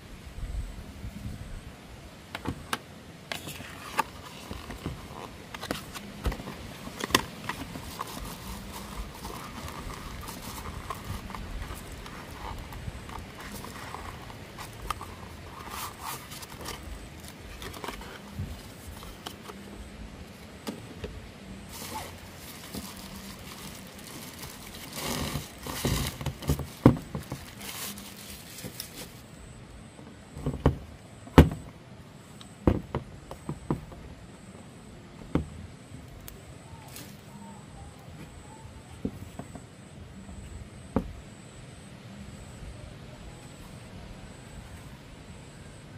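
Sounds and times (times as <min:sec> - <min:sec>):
cardboard box sliding and rustling: 0:03.3 - 0:19.7, 0:21.6 - 0:29.3
plastic bag crinkling: 0:03.5 - 0:19.5, 0:21.7 - 0:29.4.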